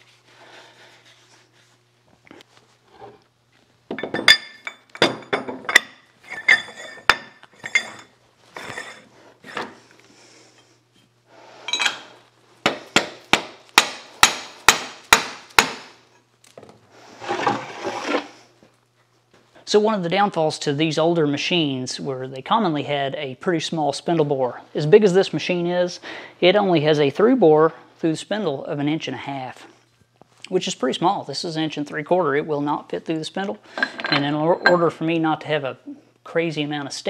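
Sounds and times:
metal clanks and clinks: 3.9s - 9.0s, 33.7s - 34.9s.

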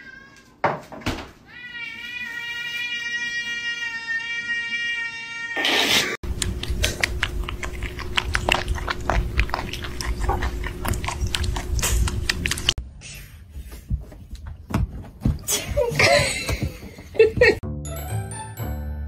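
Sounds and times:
kittens suckling wet smacking: 6.3s - 12.8s.

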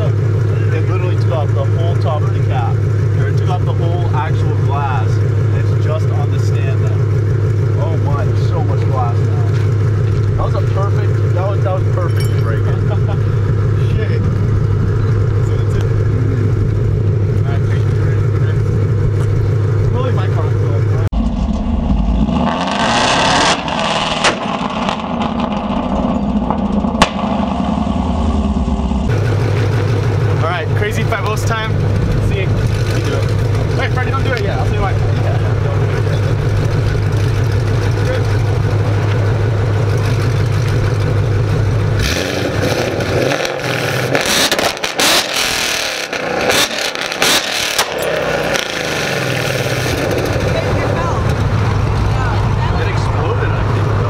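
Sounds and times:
car engine running: 0.0s - 54.0s
car exhaust blast: 0.0s - 54.0s
exhaust cracks: 0.0s - 54.0s.

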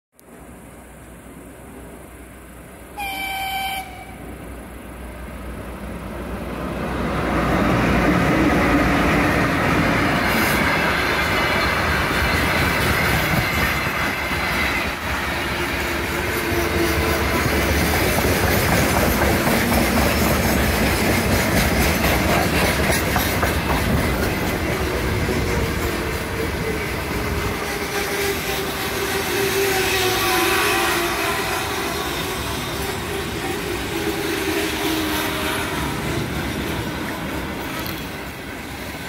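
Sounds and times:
electric locomotive passing: 0.2s - 39.0s
train wheels clattering over rail joints: 8.9s - 29.7s.

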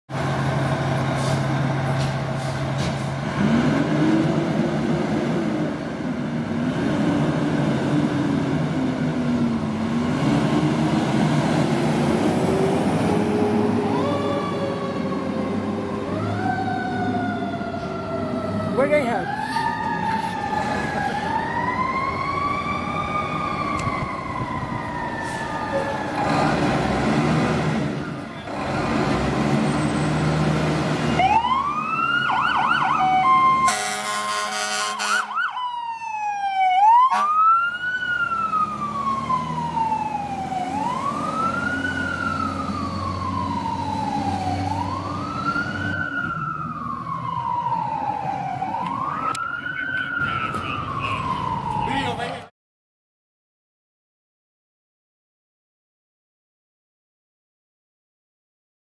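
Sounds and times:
heavy engine rumble: 0.1s - 31.2s
fire engine siren wailing: 0.1s - 52.5s
siren yelp: 12.4s - 26.4s, 31.1s - 52.5s
air horn blast: 33.6s - 35.3s, 37.1s - 37.4s.

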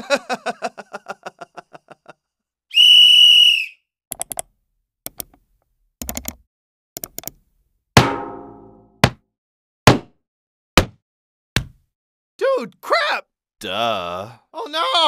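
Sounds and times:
loud whistle blast: 2.7s - 3.8s
loud ringing hit: 8.0s - 8.9s.

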